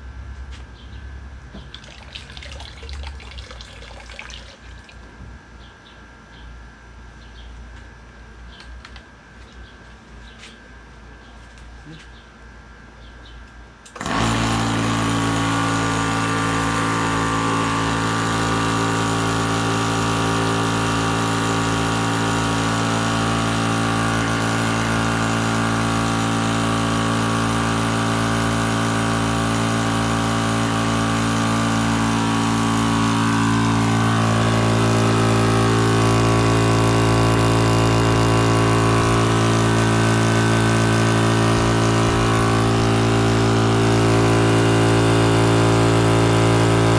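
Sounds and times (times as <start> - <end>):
electric air compressor running: 13.9 - 46.9.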